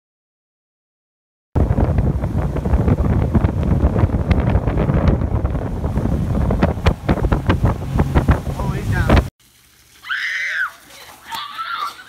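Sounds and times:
boat engine: 1.6 - 9.3
rush of churning wake: 1.6 - 9.3
wind buffeting microphone: 1.6 - 9.3.

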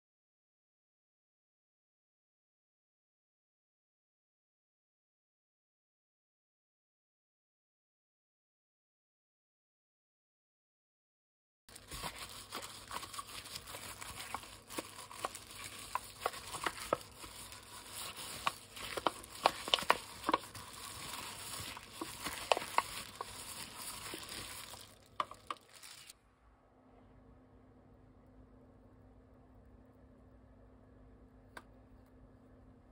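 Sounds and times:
plastic glove crinkling on paper cup: 11.7 - 26.2.

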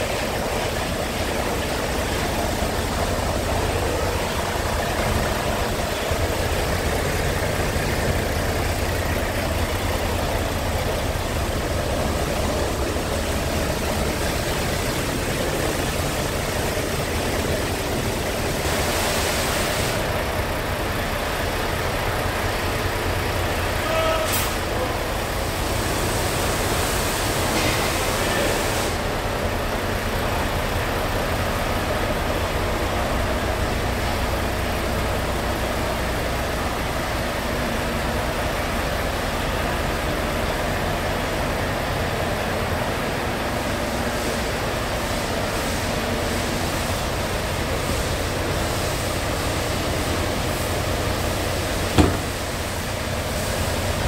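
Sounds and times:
broad steady hiss: 0.0 - 54.0
diesel engine idling: 0.0 - 54.0
sharp knock: 52.0 - 52.4.

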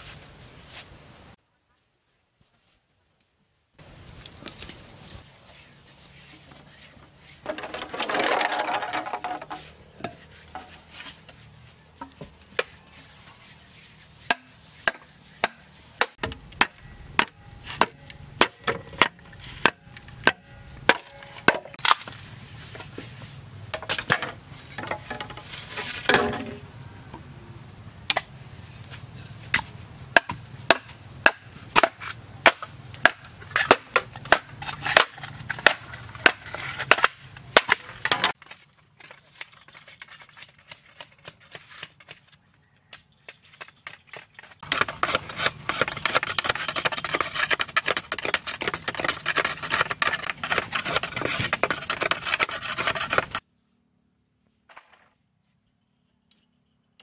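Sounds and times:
bamboo crackling and scraping: 0.0 - 53.8
machete chopping bamboo: 14.3 - 22.2, 28.1 - 28.3, 29.5 - 38.6.

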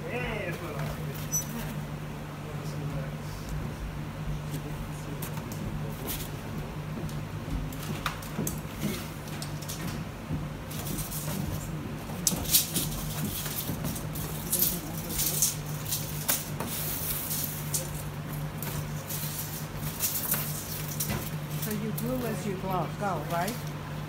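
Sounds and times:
steady low hum: 0.0 - 24.0
paper rustling and crackling: 10.7 - 23.7.

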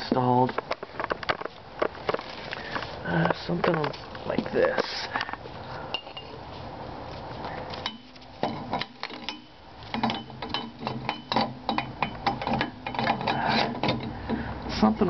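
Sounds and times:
metal pipe knocking on steel frame: 7.9 - 14.4.

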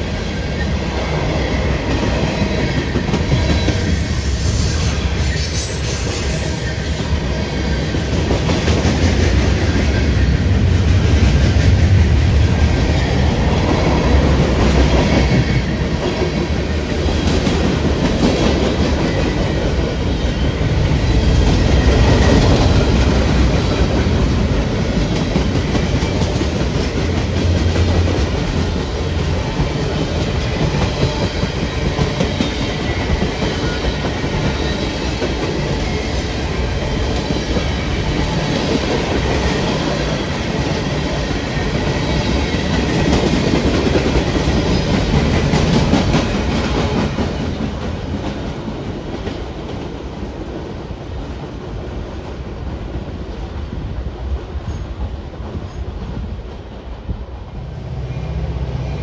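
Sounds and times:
train cars rumbling on rails: 0.0 - 59.0.

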